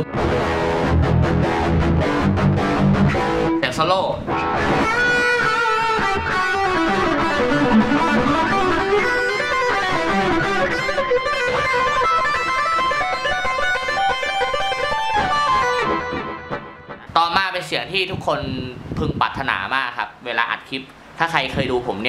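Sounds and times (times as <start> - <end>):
guitar delay repeats: 0.0 - 17.1
distorted electric guitar lead: 0.0 - 17.2.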